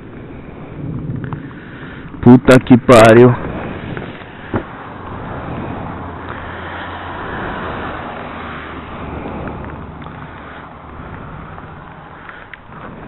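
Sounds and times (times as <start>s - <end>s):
road noise: 0.0s - 13.0s
vehicle engine running: 3.4s - 13.0s
small clicks: 12.2s - 12.7s.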